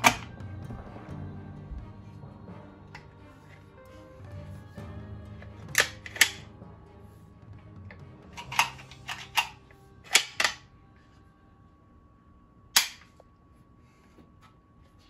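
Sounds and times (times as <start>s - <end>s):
shotgun action clicking: 12.8s - 13.1s.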